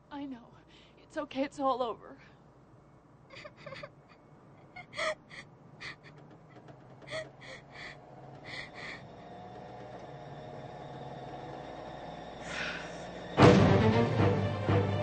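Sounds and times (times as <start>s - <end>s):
low steady hum: 0.0s - 6.2s, 7.0s - 10.1s
person crying in gasping sobs: 3.3s - 6.2s, 7.1s - 9.1s.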